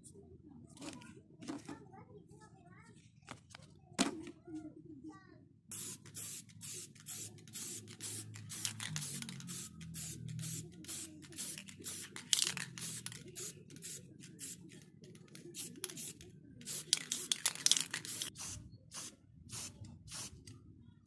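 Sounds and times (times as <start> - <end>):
spray paint can hissing: 5.7 - 20.4.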